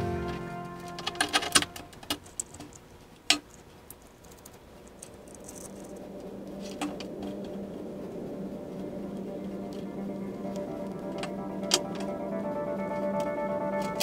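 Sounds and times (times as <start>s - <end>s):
faint background music: 0.0s - 2.5s, 5.7s - 14.0s.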